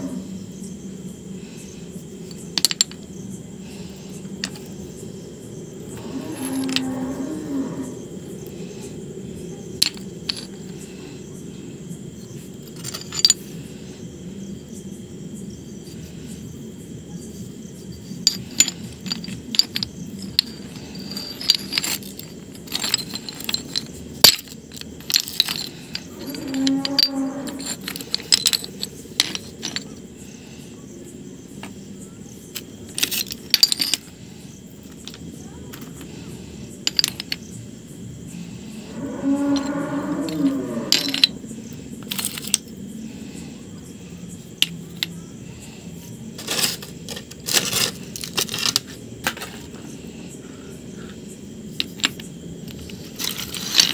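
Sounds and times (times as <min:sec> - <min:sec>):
stones clinking together: 0:02.2 - 0:03.1, 0:04.2 - 0:04.8, 0:06.0 - 0:06.9, 0:09.8 - 0:10.7, 0:12.6 - 0:13.5, 0:17.9 - 0:30.0, 0:32.5 - 0:34.2, 0:34.8 - 0:36.1, 0:36.8 - 0:37.5, 0:39.5 - 0:41.4, 0:42.0 - 0:42.7, 0:44.6 - 0:45.2, 0:46.4 - 0:49.9, 0:51.8 - 0:53.9.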